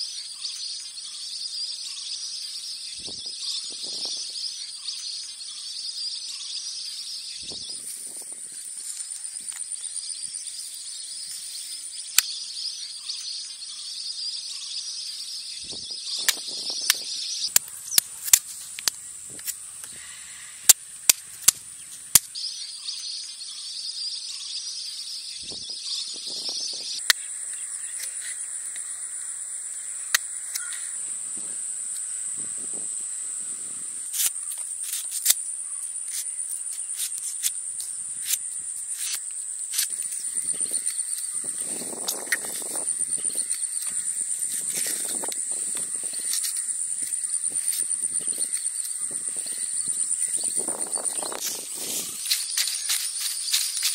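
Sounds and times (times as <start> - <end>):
high-pitched insect chorus: 0.0 - 53.9
low insect drone: 0.0 - 53.9
knife cutting and peeling fruit: 16.2 - 20.0, 34.1 - 53.9.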